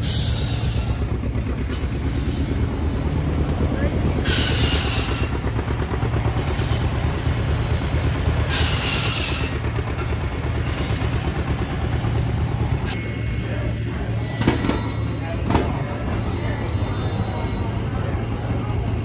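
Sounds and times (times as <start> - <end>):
old tractor engine running: 0.0 - 19.0
saw cutting wood: 4.2 - 5.4, 8.5 - 10.1.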